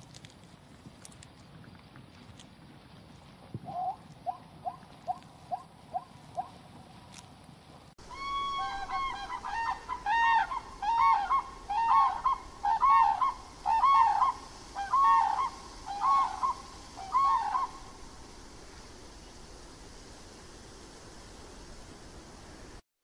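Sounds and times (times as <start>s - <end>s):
crane calling: 8.0s - 18.0s.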